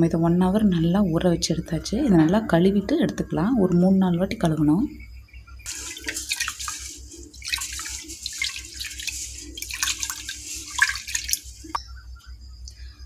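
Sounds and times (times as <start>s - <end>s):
water splashing in a pot: 5.6s - 11.8s
hand rinsing rice in water: 5.7s - 11.8s.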